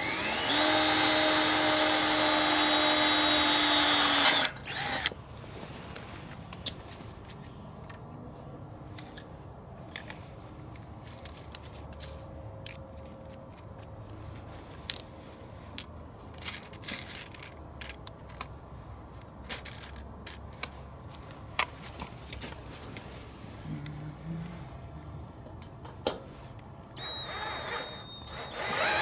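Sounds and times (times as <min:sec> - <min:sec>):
screws and tools rattling: 0:16.4 - 0:18.5.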